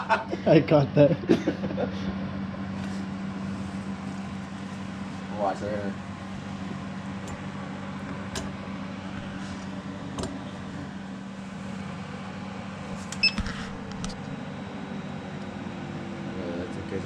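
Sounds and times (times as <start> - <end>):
machine humming: 0.0 - 17.0
high beep: 13.2 - 13.4.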